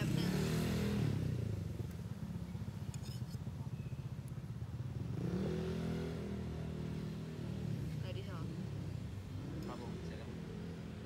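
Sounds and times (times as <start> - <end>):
street traffic rumble: 0.0 - 11.0
light metal clinks: 2.4 - 4.4.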